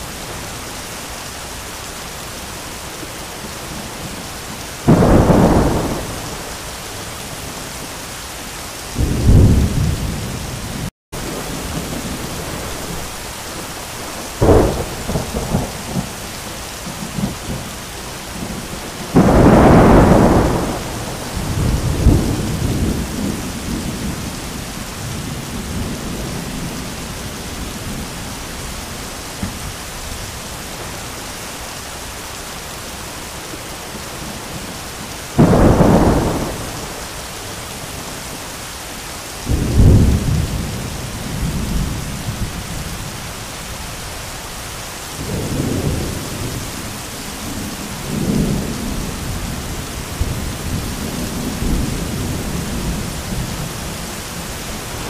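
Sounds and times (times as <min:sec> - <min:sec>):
heavy rain pouring: 0:00.0 - 0:55.0
thunder cracks and rumbles: 0:04.8 - 0:06.6, 0:08.9 - 0:13.2, 0:14.1 - 0:17.7, 0:18.3 - 0:27.0, 0:35.4 - 0:37.2, 0:39.4 - 0:43.2, 0:45.2 - 0:55.0.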